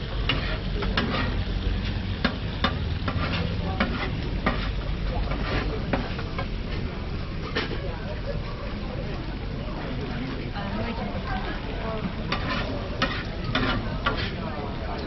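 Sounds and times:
meat sizzling on a griddle: 0.0s - 15.0s
metal spatula scraping griddle: 0.1s - 6.6s, 7.4s - 7.8s, 11.4s - 14.6s.

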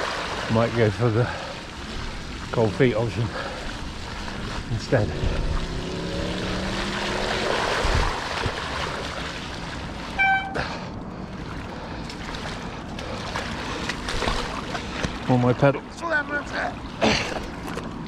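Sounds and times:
floodwater rushing: 0.0s - 18.0s
low drone falling in pitch: 5.0s - 7.6s
short high note: 10.2s - 10.8s.

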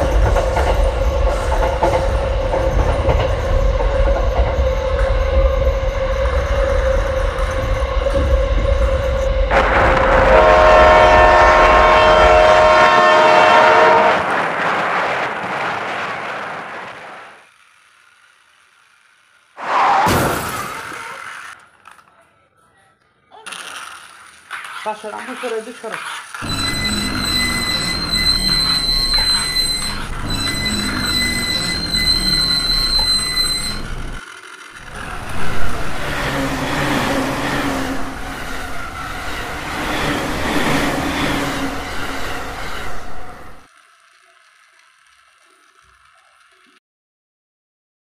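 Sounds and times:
high-pitched electronic whine: 0.0s - 10.8s, 26.4s - 34.2s
train horn chord: 9.0s - 14.4s
toy motor drone: 17.4s - 19.6s, 23.4s - 43.0s, 43.6s - 46.8s.

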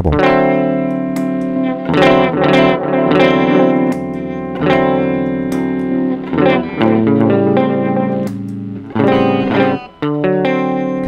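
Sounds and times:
electric guitar chords strummed: 0.0s - 11.0s.

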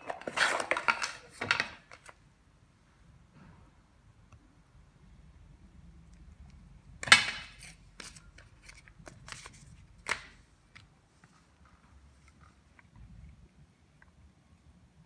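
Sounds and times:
paper leaflets rustling: 7.6s - 10.3s.

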